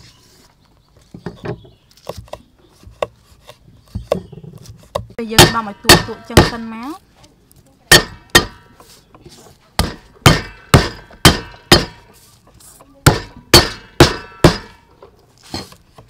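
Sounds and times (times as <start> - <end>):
cleaver smashing garlic on wood: 9.8 - 12.1.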